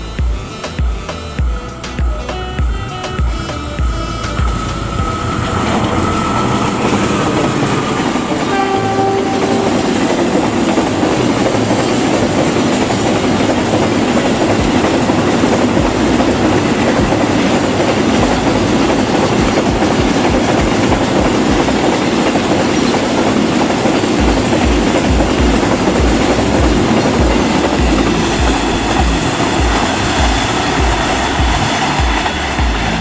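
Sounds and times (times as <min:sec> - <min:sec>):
train horn blast: 0:00.0 - 0:19.7
train wheels rumbling on rail: 0:00.0 - 0:33.0
clickety-clack over rail joints: 0:00.2 - 0:33.0.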